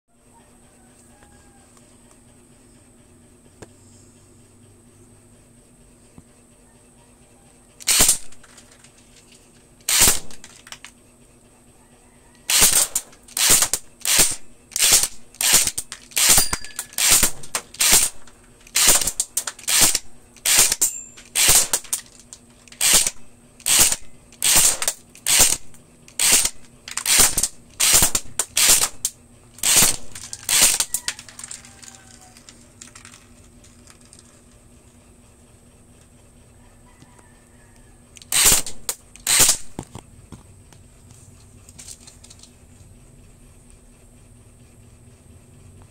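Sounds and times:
airsoft rifle shots: 7.8 - 8.6, 9.9 - 10.7, 12.5 - 22.1, 22.8 - 31.0, 38.3 - 39.8.

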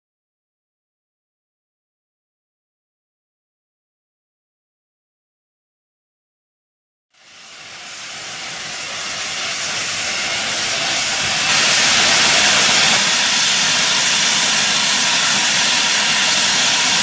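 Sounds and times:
steam hissing from locomotive: 7.2 - 17.0.

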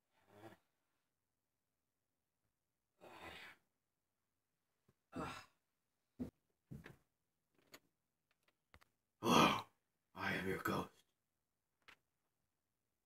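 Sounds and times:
breathy sighs: 5.1 - 5.6.

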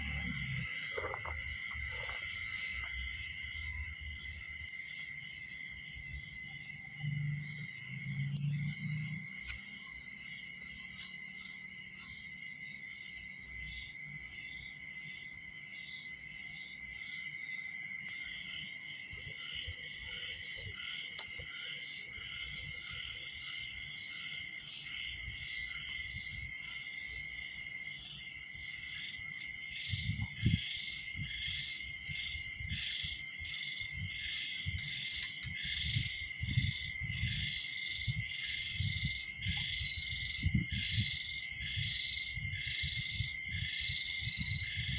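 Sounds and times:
low thumps and rumbles: 29.6 - 34.9, 35.5 - 44.9.

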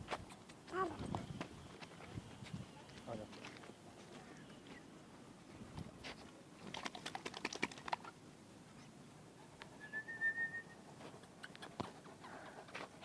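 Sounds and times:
light clicks and scuffs: 0.1 - 4.9, 5.5 - 6.4
short whistled note: 9.8 - 10.8.

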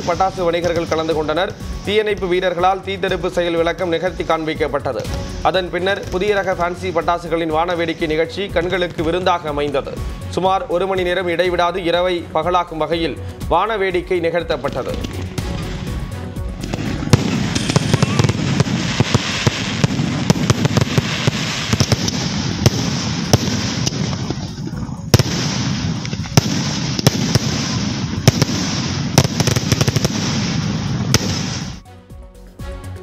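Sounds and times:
fireworks bangs: 0.0 - 2.3, 14.6 - 31.8
fireworks crackling: 0.0 - 10.1, 14.5 - 31.8.

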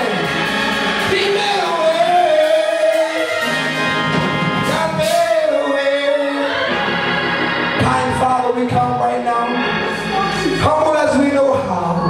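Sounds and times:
drums: 0.0 - 12.0
organ-like keyboard chords: 0.0 - 12.0.

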